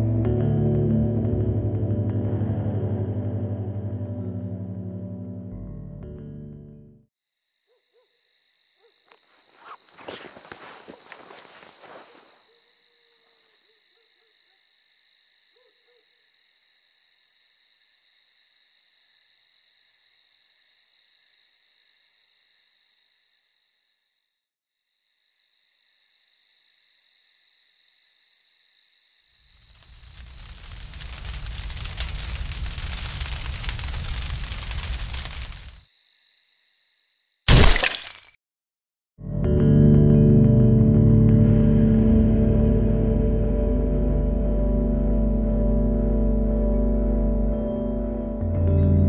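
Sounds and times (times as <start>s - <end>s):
insects chirring: 7.2s - 38.1s
short noisy rustle: 29.9s - 35.8s.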